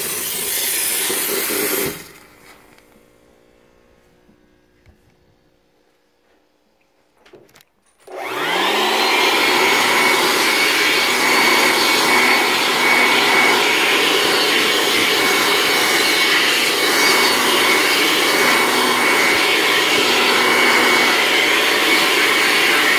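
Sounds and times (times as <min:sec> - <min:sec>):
electric air blower whining: 0:00.0 - 0:05.5, 0:08.0 - 0:22.9.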